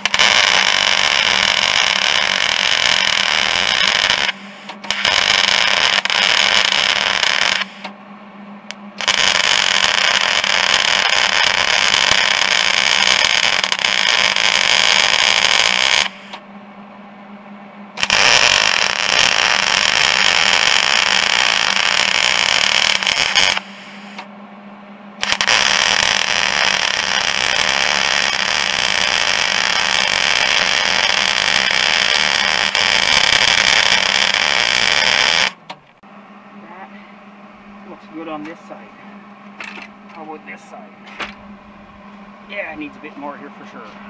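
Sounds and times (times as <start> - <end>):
welding arc: 0.0 - 7.9, 9.0 - 16.4, 18.0 - 24.3, 25.2 - 35.6.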